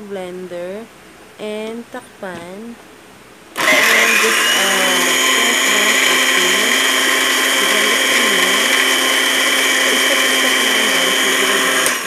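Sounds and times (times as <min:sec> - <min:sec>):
blender grinding cookies: 0:03.6 - 0:12.0.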